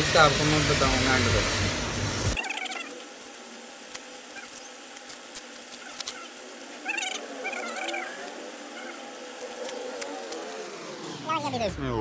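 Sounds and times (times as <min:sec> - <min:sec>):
plastic packaging crinkling: 0:02.4 - 0:10.7.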